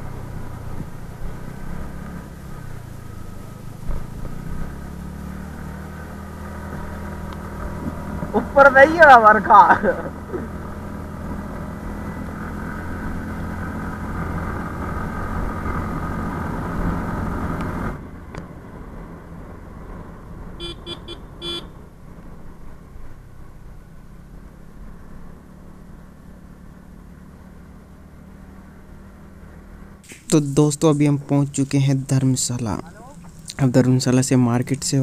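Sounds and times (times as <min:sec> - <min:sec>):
motorcycle engine: 0:00.0 - 0:35.0
vehicle horn short beeps: 0:20.6 - 0:21.7.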